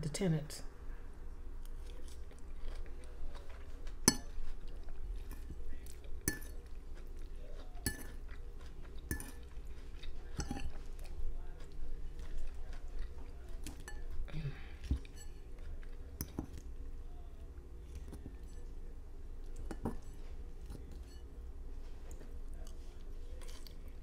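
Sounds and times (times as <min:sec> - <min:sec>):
chewing: 0:01.6 - 0:16.9, 0:17.8 - 0:18.8, 0:21.8 - 0:24.0.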